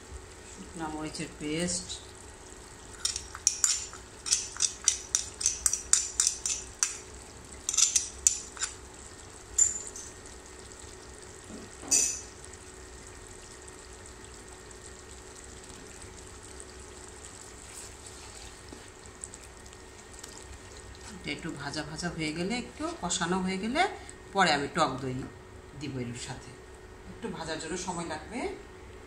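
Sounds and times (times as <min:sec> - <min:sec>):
onions sizzling in oil: 0:00.0 - 0:22.0
oil crackling and popping: 0:02.8 - 0:21.2.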